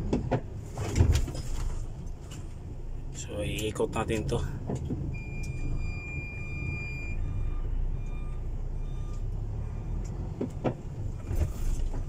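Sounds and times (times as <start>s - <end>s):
truck diesel engine rumble: 0.0s - 12.0s
reverse warning beeps: 5.1s - 10.2s.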